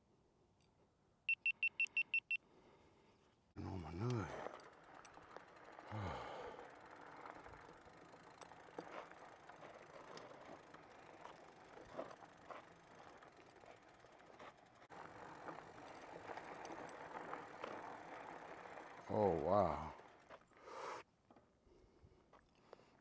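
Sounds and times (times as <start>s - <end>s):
person grunting: 3.6s - 4.4s, 5.9s - 6.6s
bike rattling on dirt trail: 3.6s - 20.7s.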